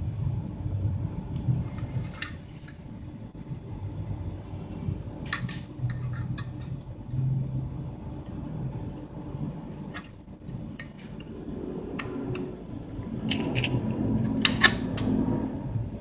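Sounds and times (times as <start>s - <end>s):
low background hum: 0.0s - 16.0s
metal clicks and scrapes: 5.3s - 6.9s, 13.2s - 15.2s.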